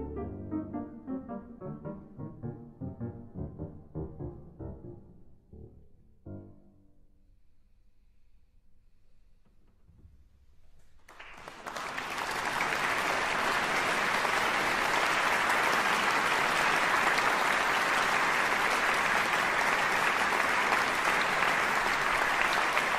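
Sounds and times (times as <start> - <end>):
audience applause: 11.1 - 22.9.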